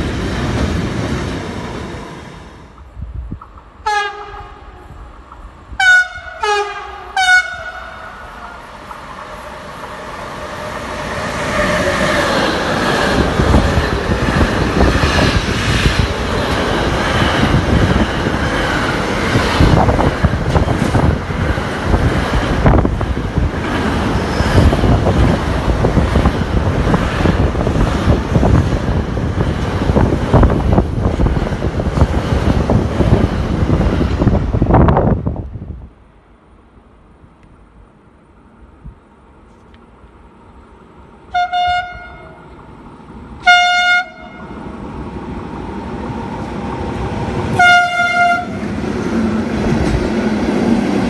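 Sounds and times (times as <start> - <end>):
train wheels rumbling on rails: 0.0 - 36.0, 37.5 - 51.0.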